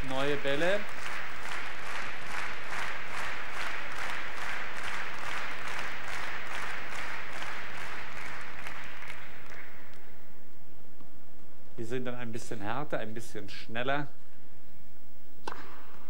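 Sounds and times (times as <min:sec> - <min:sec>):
crowd clapping in rhythm: 0:00.0 - 0:10.2.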